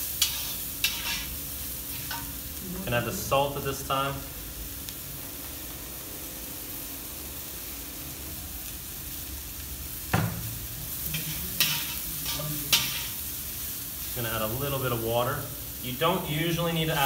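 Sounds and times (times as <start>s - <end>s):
vegetables sizzling in a wok: 0.0s - 17.0s.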